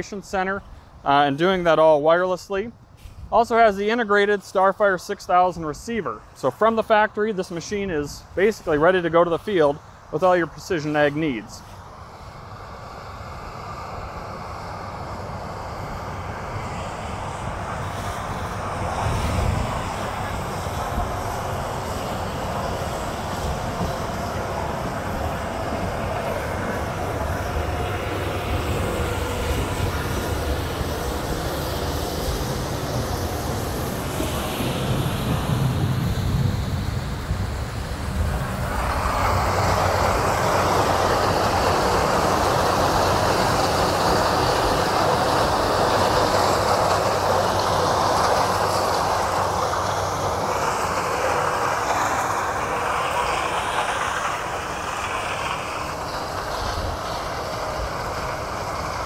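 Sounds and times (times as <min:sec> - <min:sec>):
low machinery rumble: 0:00.0 - 0:59.0
corn pouring rushing hiss: 0:02.4 - 0:59.0.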